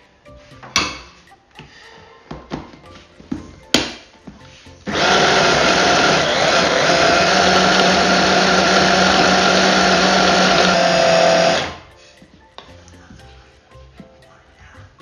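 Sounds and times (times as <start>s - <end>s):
food processor motor running: 4.9s - 11.9s.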